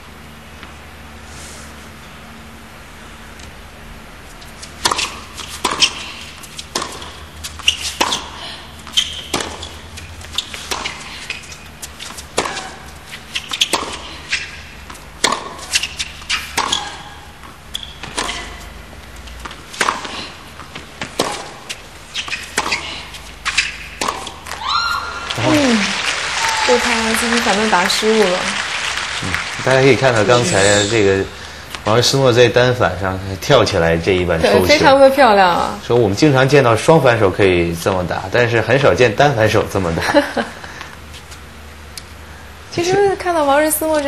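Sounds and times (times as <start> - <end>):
tennis ball bouncing: 4.5 - 25.9
tennis rackets striking ball: 4.6 - 25.8.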